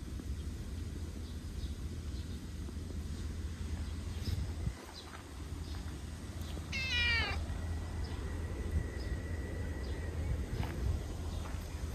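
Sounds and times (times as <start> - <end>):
cat meowing: 6.7 - 7.4.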